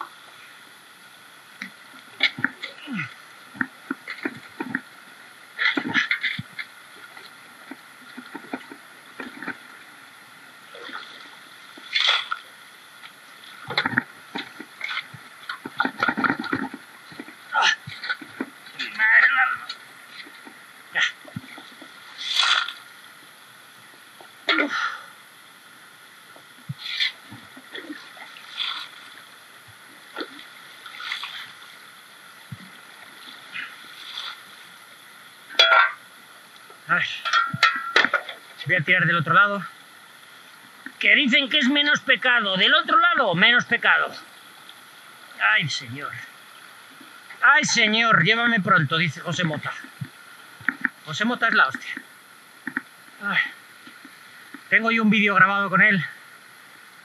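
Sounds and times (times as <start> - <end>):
river flowing: 0.0 - 57.0
shovel digging gravel in water: 22.2 - 22.8.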